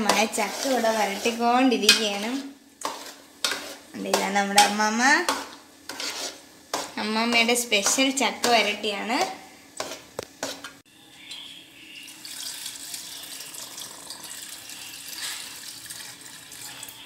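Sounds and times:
syrup trickling and splashing: 12.1s - 17.0s.

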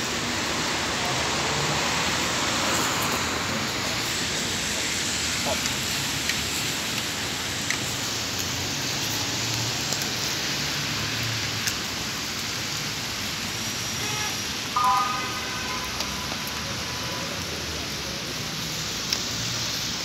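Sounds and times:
faint road traffic hum: 0.0s - 20.0s
steady rain hiss: 0.0s - 20.0s
water drips: 14.6s - 17.6s.

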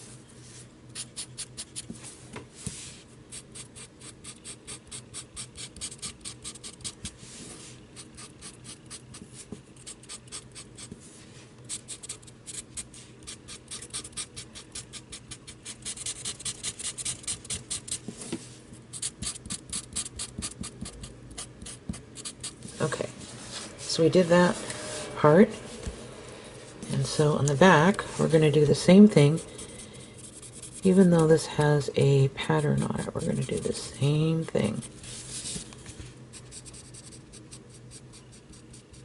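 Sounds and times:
marker scratching on cardboard: 3.3s - 7.2s, 8.0s - 11.0s, 11.7s - 18.1s, 18.9s - 22.6s, 30.2s - 31.3s, 36.4s - 39.0s.

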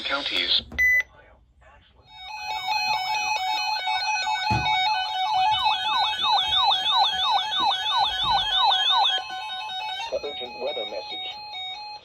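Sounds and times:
steady beeping tones: 2.1s - 12.0s
warbling warning siren: 2.1s - 12.0s.

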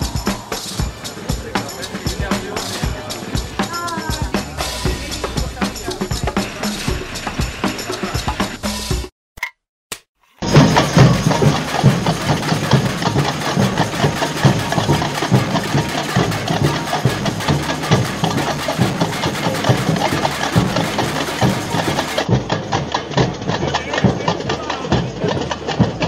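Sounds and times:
bass drums beating: 0.0s - 9.1s, 10.4s - 26.0s
street percussion band: 0.0s - 9.1s, 10.4s - 26.0s.

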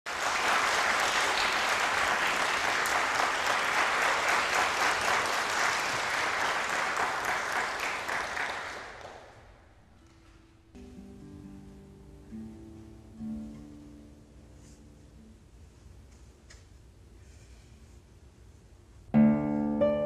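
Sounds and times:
audience applauding: 0.1s - 9.6s.

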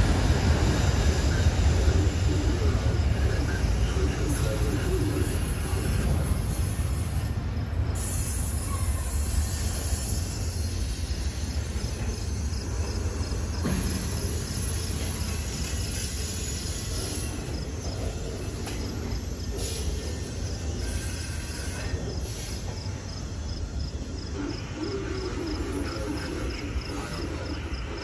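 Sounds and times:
freight train wheels rumbling: 0.0s - 28.0s.

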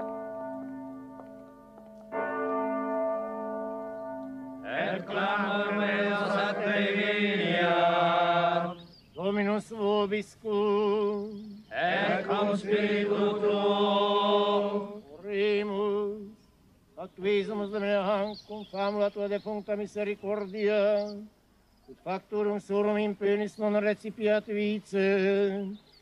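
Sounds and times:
church chant with vibrato: 2.6s - 16.3s.

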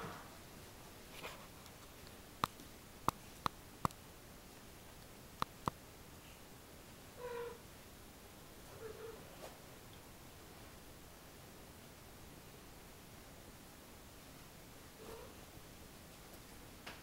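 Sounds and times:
sharp clicks: 5.4s - 5.8s
cat meowing low: 7.2s - 7.6s.

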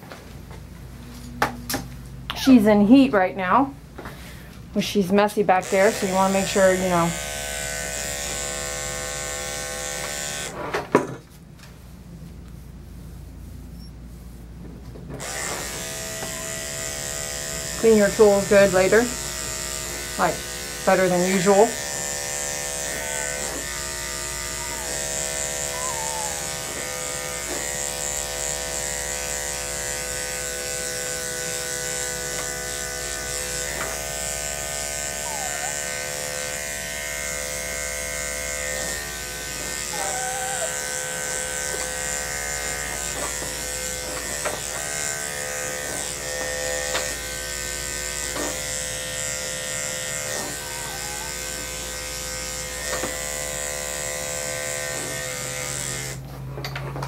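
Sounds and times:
electric clipper buzzing: 5.2s - 10.6s, 15.2s - 56.3s
faint short squeaks: 13.7s - 14.0s.

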